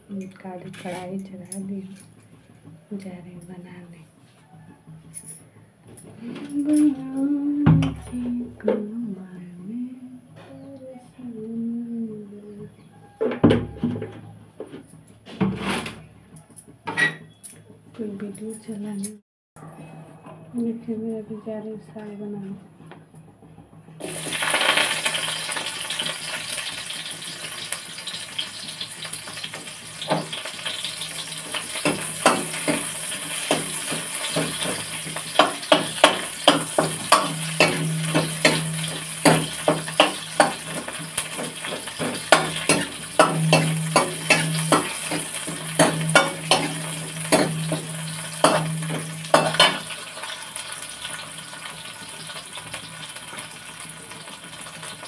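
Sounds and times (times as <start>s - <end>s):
food sizzling in hot oil: 24.0s - 55.0s
metal spatula scraping pan: 30.0s - 50.4s.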